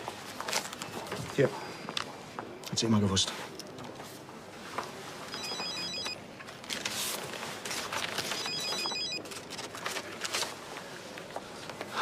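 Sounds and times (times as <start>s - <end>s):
mobile phone ringtone beeping: 5.3s - 6.2s, 8.4s - 9.2s.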